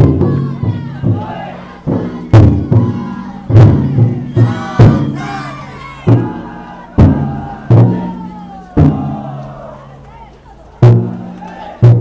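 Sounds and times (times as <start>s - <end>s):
big drum booming: 0.0s - 9.4s
people shouting and chanting: 0.0s - 12.0s.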